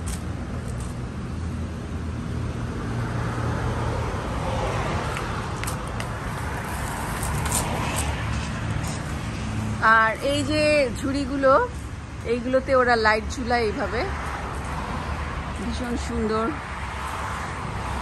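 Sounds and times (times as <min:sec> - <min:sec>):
vehicle passing: 0:02.0 - 0:12.0, 0:13.1 - 0:18.0.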